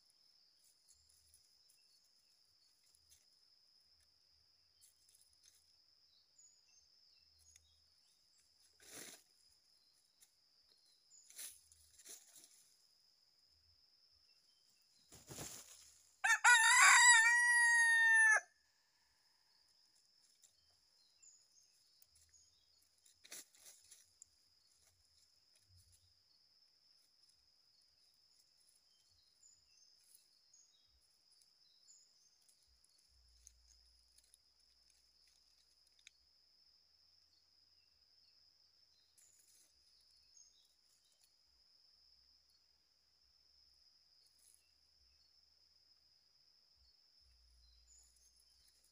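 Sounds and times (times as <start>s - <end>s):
rooster crowing: 16.2s - 18.6s.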